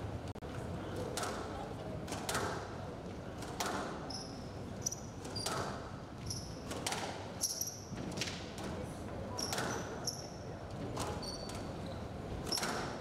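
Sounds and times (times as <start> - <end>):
squash ball hitting racket and wall: 2.1 - 2.7, 3.4 - 4.2, 5.2 - 5.9, 6.5 - 7.6, 9.4 - 9.9, 12.4 - 13.0
shoes squeaking on court: 11.1 - 12.8.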